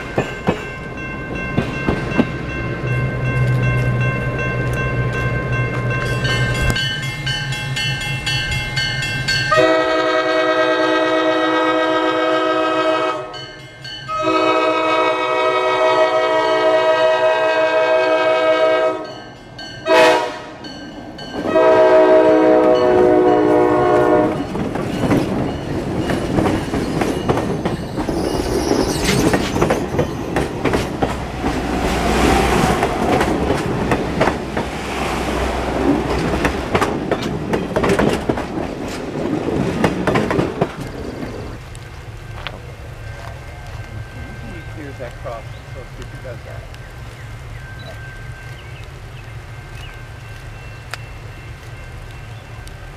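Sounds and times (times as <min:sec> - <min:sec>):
wheels clacking over rail joints: 0:00.0 - 0:09.5, 0:22.6 - 0:46.9
train rumbling past: 0:00.0 - 0:52.9
locomotive air horn blasts: 0:09.5 - 0:13.4, 0:14.1 - 0:19.2, 0:19.8 - 0:20.6, 0:21.4 - 0:24.5.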